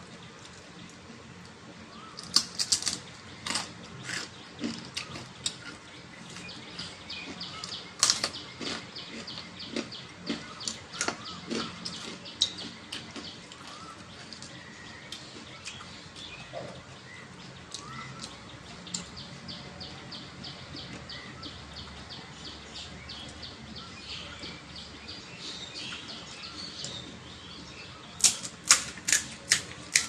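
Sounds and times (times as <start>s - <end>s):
crunchy shell being chewed: 2.2s - 16.8s, 28.2s - 30.0s.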